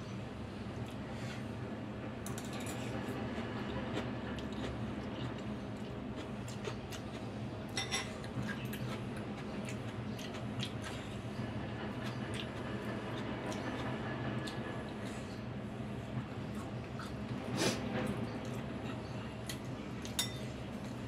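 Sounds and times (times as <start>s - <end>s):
cutlery clinking on ceramic bowl: 7.8s - 8.2s, 20.0s - 20.5s.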